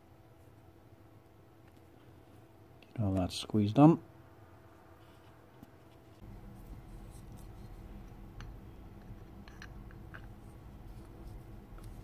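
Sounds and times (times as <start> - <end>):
gearbox parts handled by hand: 5.0 - 12.0.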